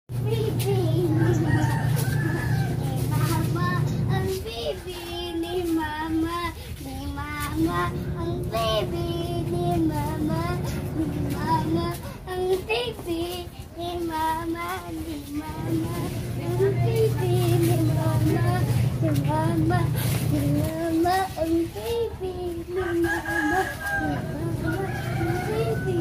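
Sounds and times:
child singing: 0:00.1 - 0:26.0.

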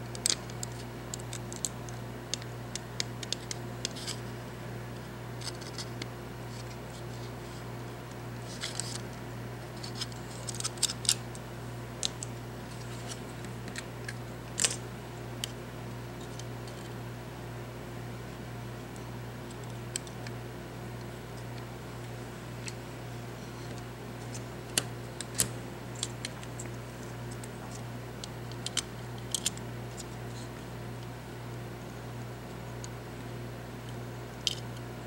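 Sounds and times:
small parts clicking and scratching: 0:00.0 - 0:04.3, 0:05.3 - 0:14.8, 0:16.2 - 0:17.0, 0:19.5 - 0:20.3, 0:21.4 - 0:22.8, 0:23.4 - 0:31.1, 0:33.8 - 0:34.9
steady low hum: 0:00.0 - 0:35.0.

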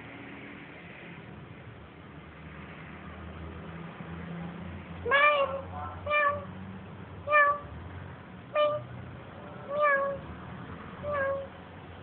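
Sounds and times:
cat meowing: 0:05.1 - 0:06.5, 0:07.3 - 0:07.7, 0:08.6 - 0:08.9, 0:09.7 - 0:10.2, 0:11.0 - 0:11.6.

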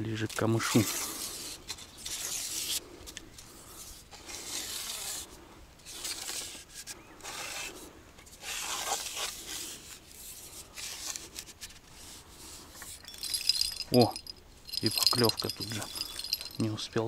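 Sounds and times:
rubbing and rustling: 0:05.9 - 0:16.7.

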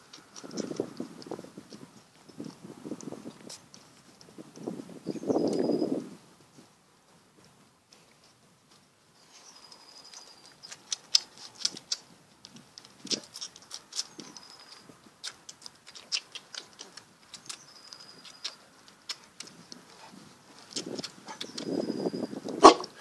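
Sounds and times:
puppies suckling wet smacking: 0:15.2 - 0:17.7.

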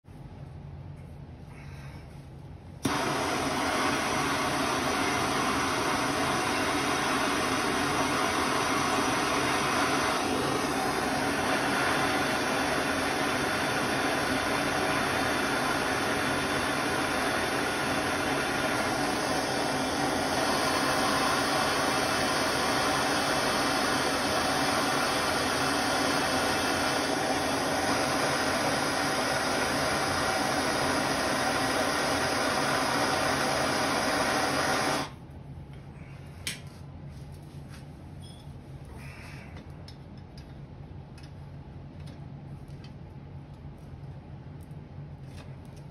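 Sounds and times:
blowtorch hissing: 0:02.8 - 0:35.2.

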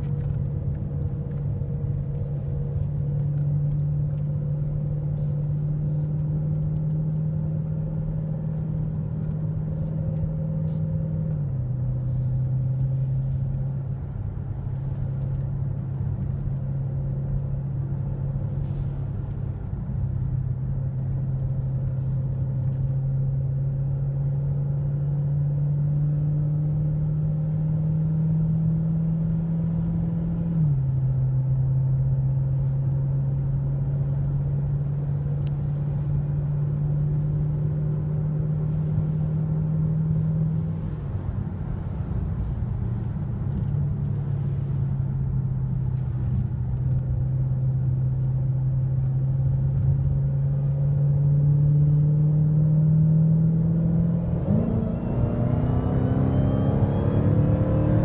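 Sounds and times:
car engine accelerating: 0:00.0 - 0:58.0.

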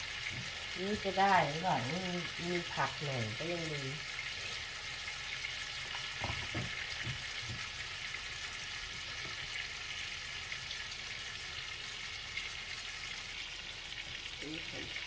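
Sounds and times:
steaks sizzling in a frying pan: 0:00.0 - 0:15.0
soft knocks: 0:06.2 - 0:07.7.

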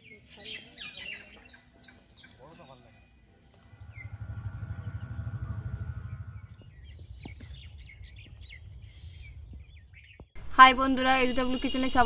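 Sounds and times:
small birds chirping: 0:00.0 - 0:10.4
low rumble: 0:03.6 - 0:10.5.

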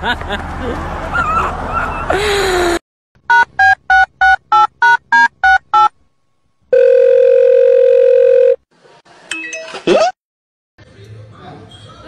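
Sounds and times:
steady phone tone: 0:03.3 - 0:05.9, 0:06.7 - 0:08.6
telephone keypad beeps: 0:03.3 - 0:05.9.

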